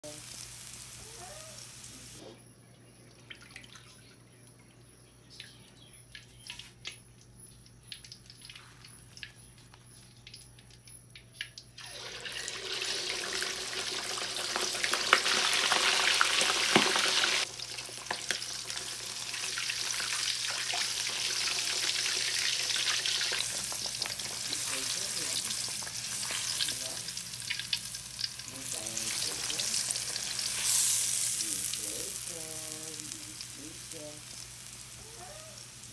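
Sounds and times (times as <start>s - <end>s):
meat sizzling in hot oil: 0.0s - 2.2s, 11.8s - 35.9s
oil popping and crackling: 6.1s - 35.9s.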